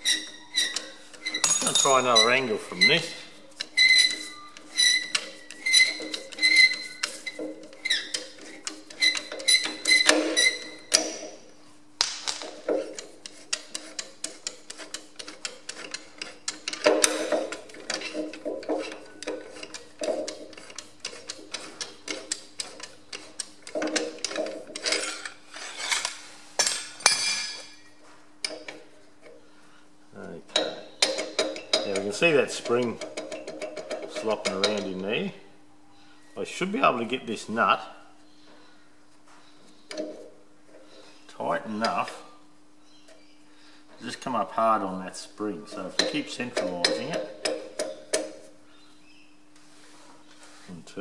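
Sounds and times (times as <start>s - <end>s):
metal clinking and scraping: 0.0s - 11.4s, 12.4s - 27.9s.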